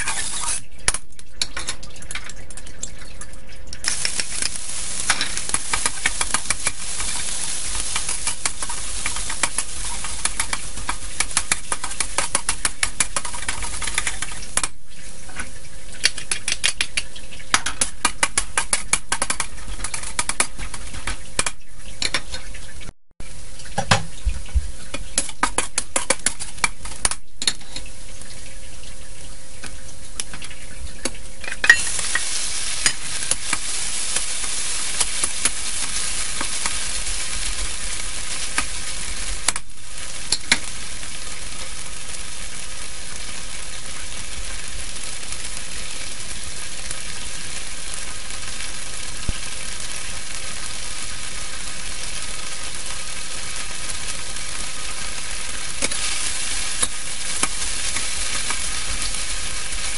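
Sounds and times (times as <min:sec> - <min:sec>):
metal spatula scraping a wok: 0:00.0 - 0:00.6
hot oil sizzling: 0:00.0 - 0:02.2, 0:03.8 - 0:59.9.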